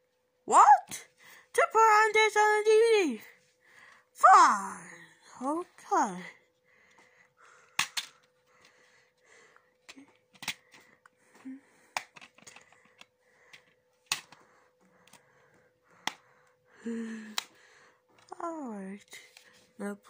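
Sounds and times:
plastic case clicks: 0:11.9 - 0:13.0.

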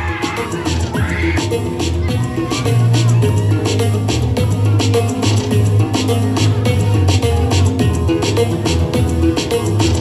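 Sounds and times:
music with deep bass and beat: 0:00.0 - 0:10.0.

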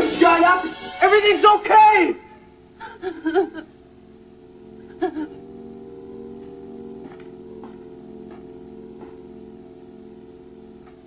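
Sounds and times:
low hum of held tones: 0:00.0 - 0:11.0
person whimpering: 0:02.8 - 0:03.6, 0:04.9 - 0:05.4.

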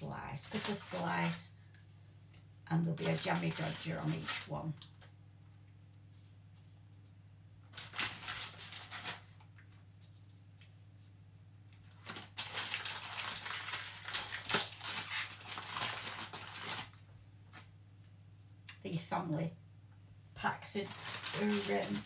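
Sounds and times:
plastic wrapper crinkling: 0:00.3 - 0:01.5, 0:02.3 - 0:05.1, 0:07.6 - 0:10.7, 0:11.7 - 0:17.7, 0:20.6 - 0:22.0.

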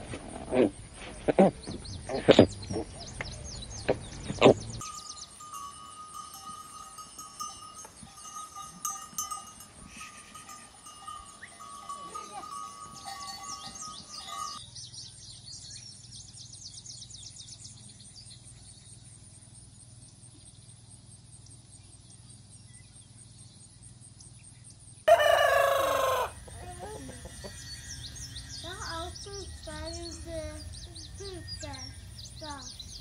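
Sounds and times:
rooster crowing: 0:25.1 - 0:28.1
hens clucking: 0:25.1 - 0:29.1
faint chirps: 0:26.4 - 0:33.0.

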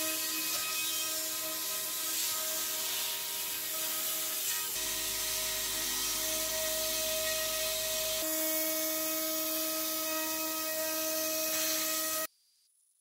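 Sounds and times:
router spindle whine: 0:04.7 - 0:08.3.

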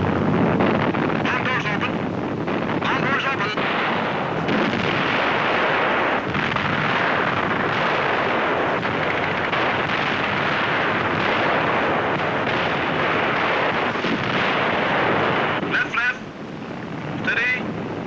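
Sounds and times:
explosions and flak roar: 0:00.0 - 0:18.0.

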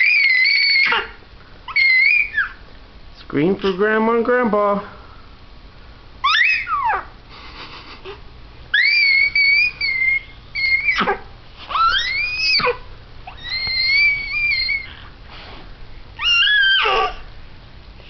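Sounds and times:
baby squealing: 0:00.0 - 0:02.6, 0:06.2 - 0:07.1, 0:08.7 - 0:15.1, 0:16.2 - 0:17.3.

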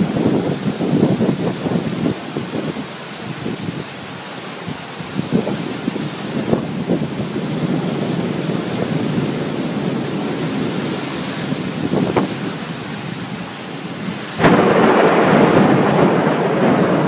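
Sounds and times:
steady rain: 0:00.0 - 0:17.0
thunder: 0:14.4 - 0:17.0.

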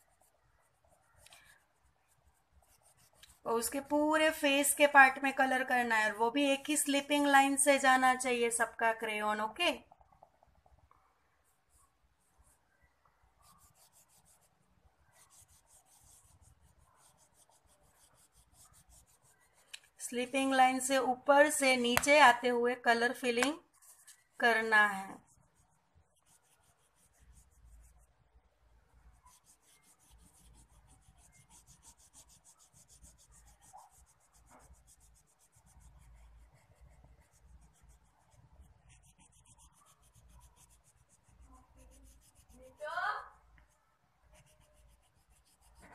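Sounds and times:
crayon scratching on paper: 0:00.0 - 0:05.6, 0:13.4 - 0:22.3, 0:23.2 - 0:28.1, 0:29.1 - 0:45.9.

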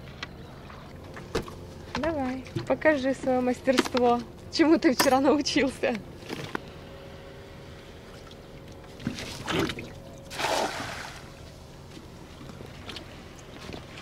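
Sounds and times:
net splashing on water: 0:09.2 - 0:11.3.

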